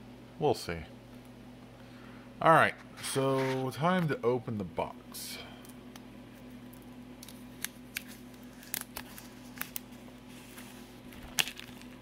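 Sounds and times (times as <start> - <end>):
steady low hum: 0.0 - 12.0
plastic wrap tearing: 7.2 - 9.9, 11.1 - 12.0
plastic shrink wrap crinkling: 7.2 - 12.0.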